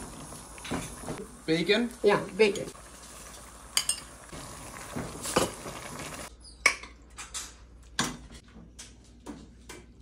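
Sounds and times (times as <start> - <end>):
utensils clinking on a metal pot: 3.7 - 4.2.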